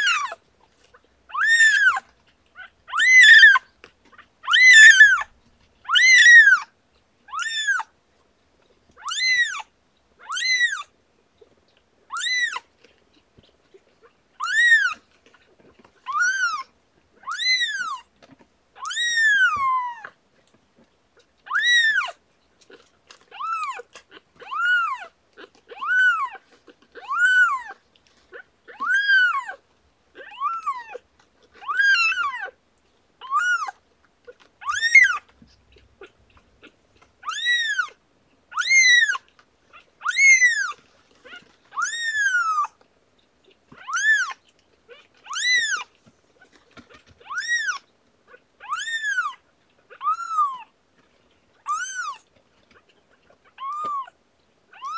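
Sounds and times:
kitten crying: 0.0 - 0.4, 1.3 - 2.0, 2.6 - 3.7, 4.4 - 6.7, 7.3 - 7.9, 9.0 - 10.9, 12.1 - 12.6, 14.4 - 15.0, 16.0 - 18.1, 18.8 - 20.1, 21.5 - 22.2, 23.3 - 25.1, 25.7 - 26.4, 27.0 - 27.8, 28.7 - 29.6, 30.2 - 31.0, 31.6 - 32.6, 33.2 - 33.8, 34.6 - 35.3, 36.0 - 39.3, 40.0 - 42.8, 43.7 - 45.9, 47.1 - 50.7, 51.6 - 52.2, 53.5 - 54.9.

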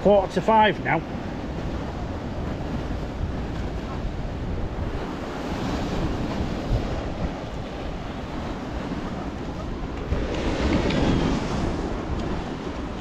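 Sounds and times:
small waves breaking on beach: 0.0 - 13.0
wind rumbling on microphone: 1.0 - 13.0.

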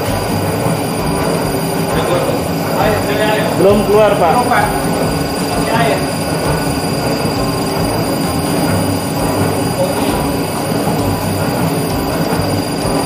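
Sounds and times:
machine motor hum and whine: 0.0 - 13.0.

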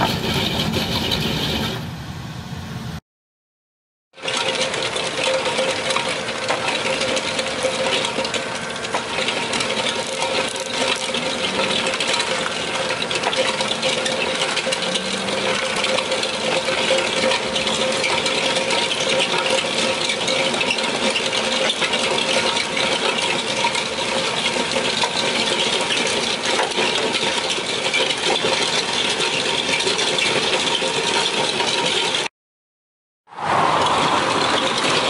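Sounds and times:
milling drum grinding asphalt: 0.0 - 2.1, 4.1 - 32.3, 33.3 - 35.0
excavator engine and hydraulics hum: 0.0 - 3.0, 4.2 - 32.3, 33.3 - 35.0.

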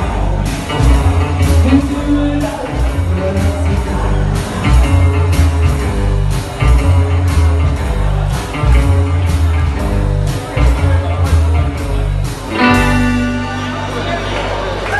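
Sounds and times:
drum kit beat: 0.0 - 14.1
live rock and roll band: 0.0 - 14.9
ringing final chord: 12.6 - 14.5.

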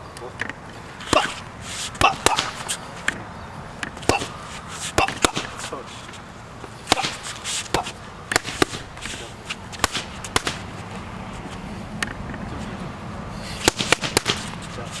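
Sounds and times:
punches smacking into mitts: 1.0 - 1.4, 2.0 - 2.6, 5.0 - 5.7, 6.9 - 8.9, 9.8 - 10.7, 13.6 - 14.5.

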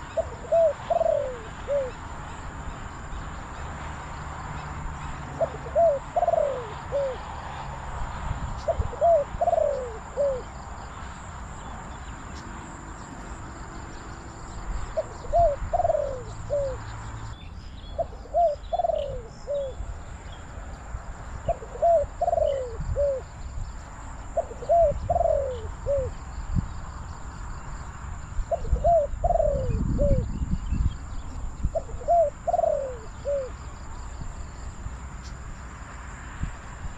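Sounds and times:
dove cooing: 0.0 - 2.4, 4.6 - 7.3, 8.6 - 10.6, 14.9 - 16.9, 18.0 - 19.8, 21.4 - 23.3, 24.3 - 26.2, 28.5 - 30.5, 31.7 - 33.8
wind rumbling on microphone: 0.0 - 36.9.

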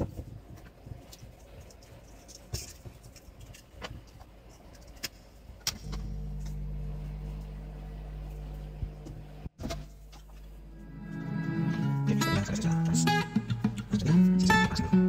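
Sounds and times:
hot-air blower humming: 5.8 - 12.0.

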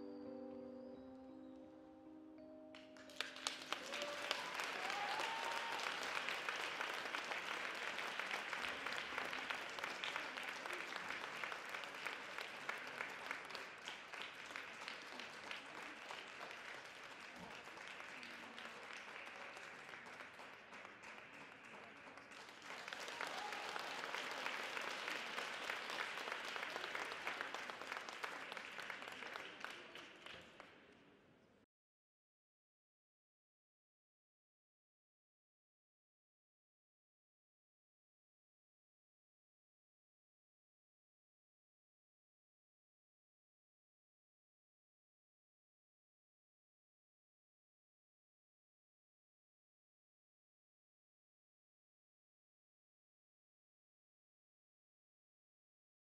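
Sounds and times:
audience applauding: 2.8 - 30.7.

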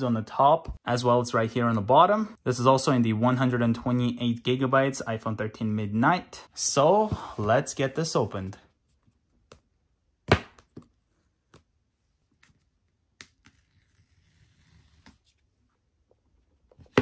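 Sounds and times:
paper strip tearing: 13.3 - 15.4.

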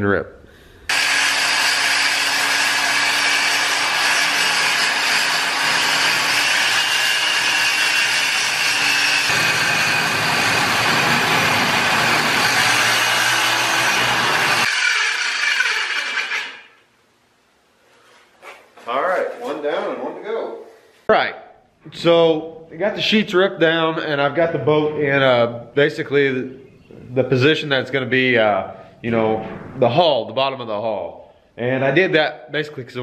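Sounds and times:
circular saw cutting metal: 0.9 - 16.8
saw blade spinning down: 0.9 - 16.8.

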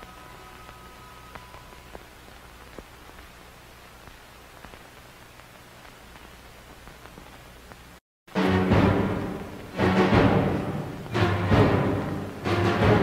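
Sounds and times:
faint held tones: 0.0 - 2.7
faint clicks and crackles: 0.0 - 8.0
steady hiss with low hum: 0.0 - 13.0.

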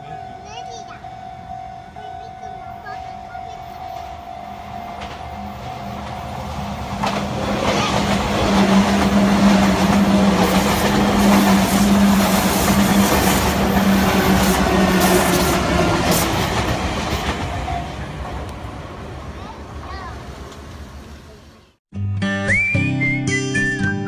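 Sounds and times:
crossing warning bell ringing: 0.0 - 7.1, 17.1 - 18.5
train wheels rushing on rails: 0.0 - 21.5
clacks over rail joints: 5.0 - 17.6.

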